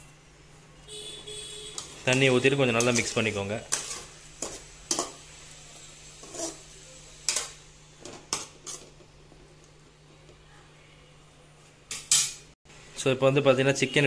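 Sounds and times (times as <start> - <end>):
metal spoon scraping metal pot: 1.7 - 5.1, 6.2 - 6.7.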